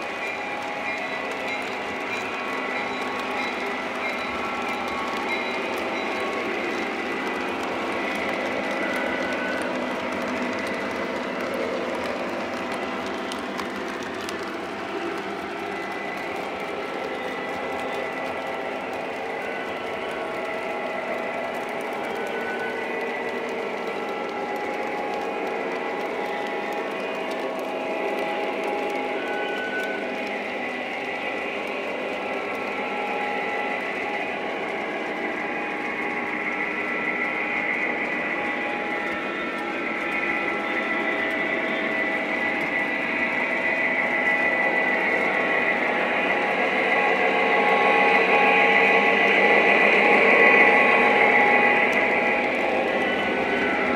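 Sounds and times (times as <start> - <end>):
constant whine: 0.0 - 53.9.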